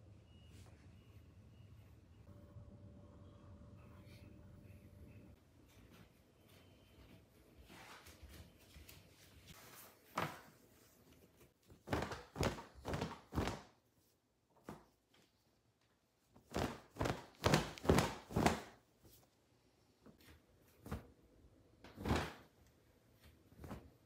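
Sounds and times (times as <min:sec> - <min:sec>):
cloth rustling and flapping: 0:07.6 - 0:13.7, 0:16.4 - 0:19.3, 0:22.0 - 0:24.0.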